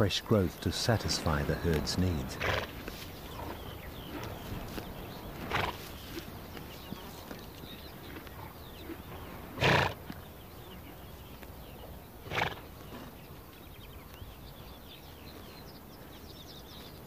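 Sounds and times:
faint birdsong: 0:00.0 - 0:17.0
horse snorting: 0:01.2 - 0:10.3, 0:11.7 - 0:13.3.

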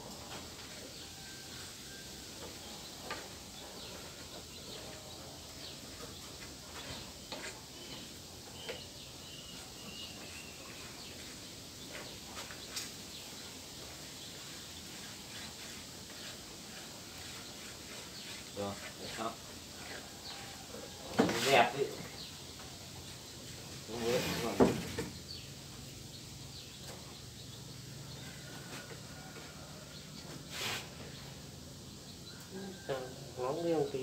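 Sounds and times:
faint bird chirps: 0:06.8 - 0:11.4.

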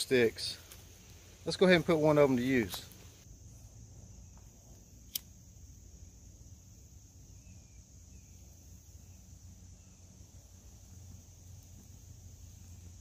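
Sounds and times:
high-pitched insect trill: 0:00.0 - 0:13.0
lighter click: 0:05.1 - 0:05.3.

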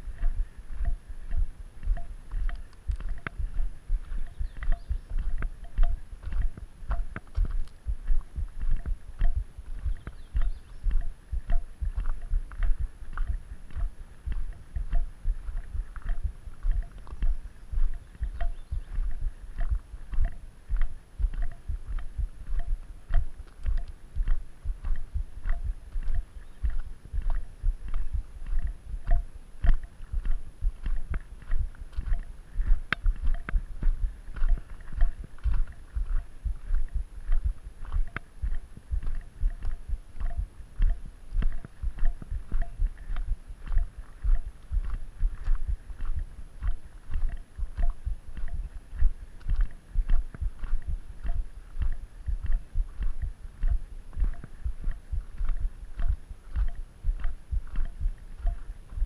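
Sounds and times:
footsteps on gravel: 0:00.0 - 0:59.0.

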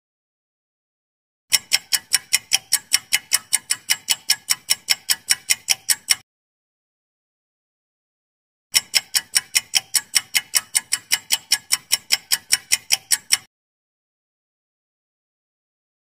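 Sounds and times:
clock ticking: 0:01.5 - 0:06.2, 0:08.7 - 0:13.5.

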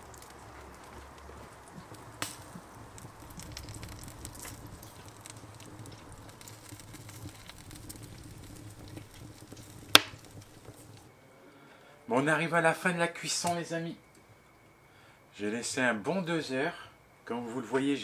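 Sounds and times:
fire pops: 0:00.0 - 0:11.1
wood fire crackling: 0:00.0 - 0:18.0
loud sharp crack: 0:09.9 - 0:10.2.

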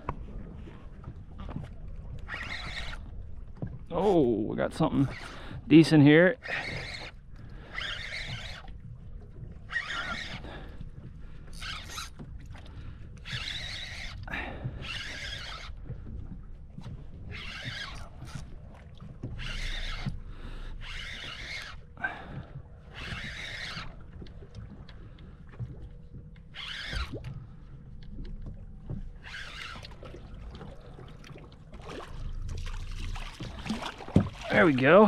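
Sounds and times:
low rumble of wind and sea: 0:00.0 - 0:35.0
water splashing against boat hull: 0:00.0 - 0:35.0.

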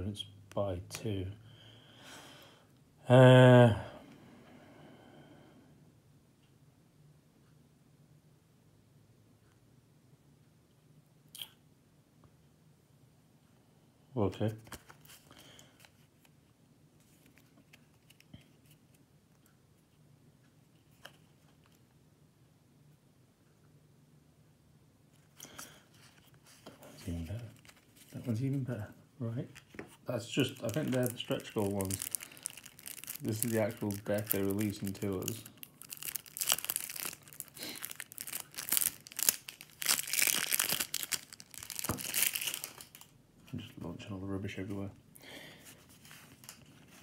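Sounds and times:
faint clicks of handling cards: 0:14.4 - 0:22.0, 0:29.4 - 0:35.5, 0:45.6 - 0:47.0
plastic wrap tearing and crinkling: 0:29.5 - 0:43.1.

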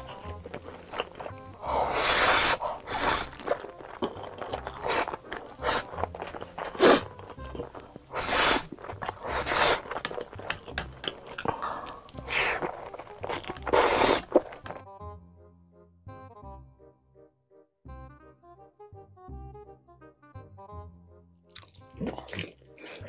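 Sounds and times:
biting: 0:00.0 - 0:14.8, 0:21.5 - 0:23.0
chewing: 0:00.0 - 0:14.8, 0:21.5 - 0:23.0
slurping noodles: 0:00.0 - 0:14.8, 0:21.5 - 0:23.0
soft background music: 0:00.0 - 0:23.0.

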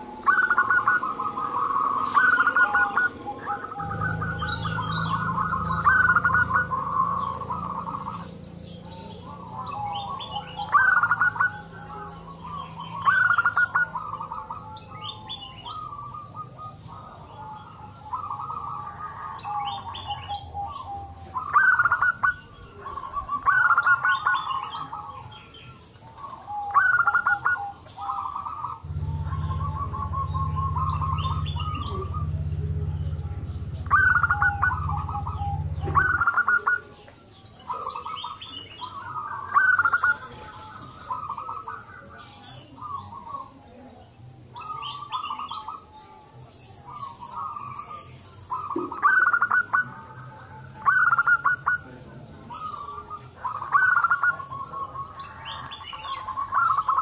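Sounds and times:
low steady hum: 0:00.0 - 0:44.0
doves cooing: 0:00.0 - 0:57.0.

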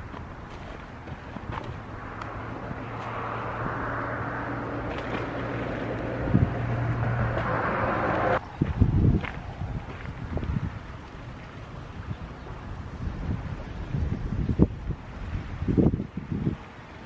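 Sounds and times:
low engine drone: 0:00.0 - 0:08.6.

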